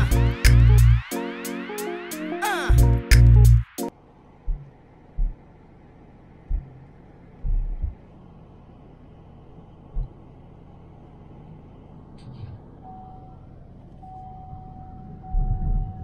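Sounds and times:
engine and road rumble: 0.0 - 1.1, 2.7 - 16.0
low thump: 4.4 - 5.4, 6.5 - 6.8, 9.9 - 10.2.

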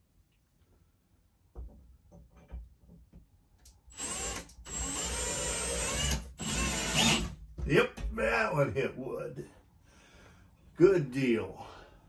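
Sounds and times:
power drill whining: 3.9 - 7.3.

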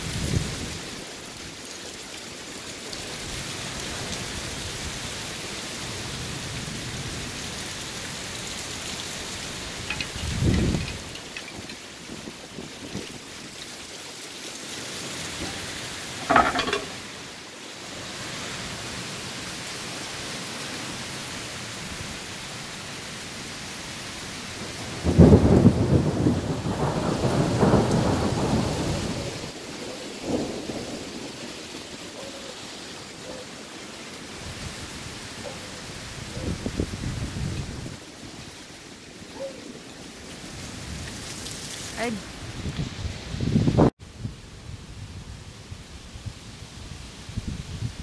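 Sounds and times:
steady rain: 0.0 - 48.0
thunder rumbling: 24.8 - 31.5.

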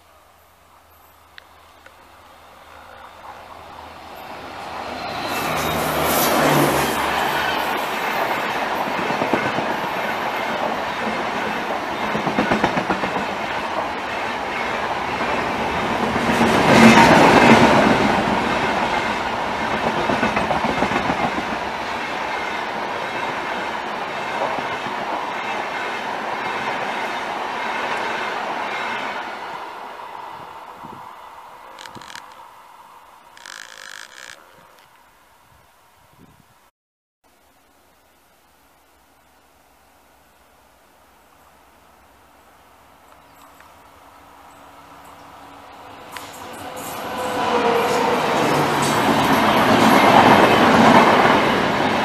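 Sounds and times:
diesel locomotive engine: 0.8 - 34.3, 43.6 - 52.0
train coaches rushing past: 2.4 - 32.8, 44.4 - 52.0.

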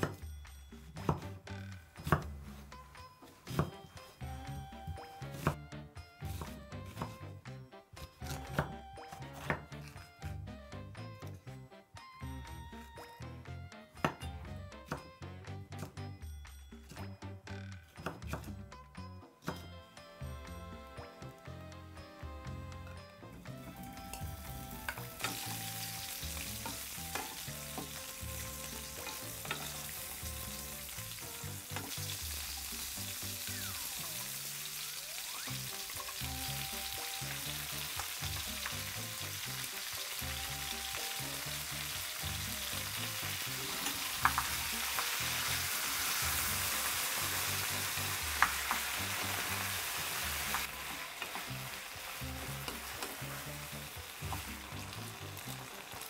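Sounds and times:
soft background music: 0.0 - 56.0
food sizzling in a frying pan: 23.6 - 56.0.

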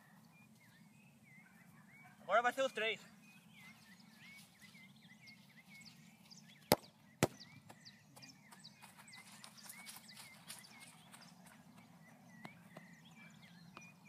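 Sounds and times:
birds chirping faintly: 0.0 - 14.0
ball kicked with bare foot: 6.7 - 7.4.

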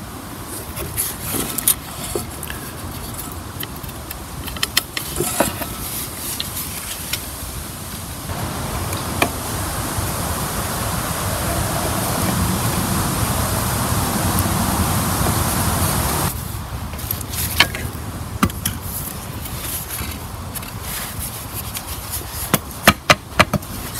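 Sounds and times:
steady rushing noise: 5.2 - 22.1.

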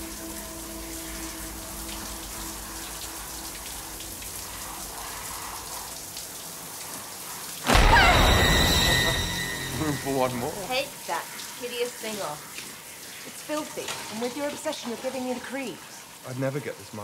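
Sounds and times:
shower spray hissing: 0.0 - 17.0
sudden loud sound: 7.7 - 11.0.

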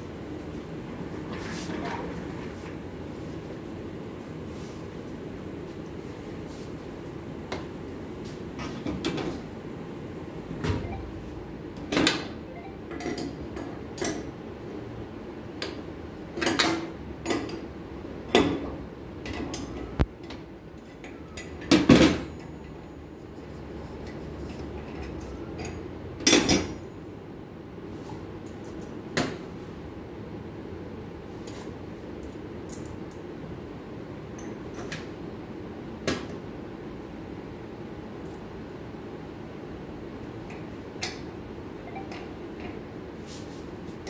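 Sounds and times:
steady hum: 0.0 - 16.4.

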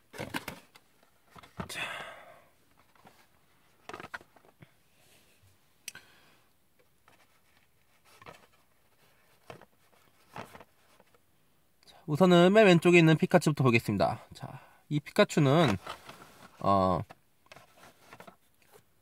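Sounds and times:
cardboard rustling: 0.0 - 1.7, 7.0 - 11.2, 15.5 - 18.9.

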